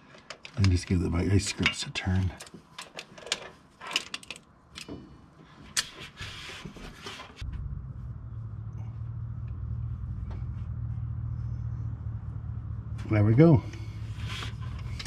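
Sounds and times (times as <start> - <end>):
steady low hum: 7.4 - 15.0.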